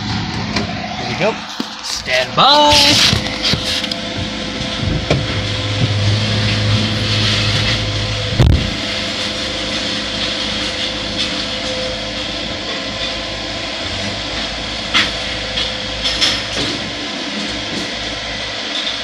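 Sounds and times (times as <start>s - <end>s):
excavator running: 0.0s - 19.0s
scrap metal clanking: 2.7s - 11.4s.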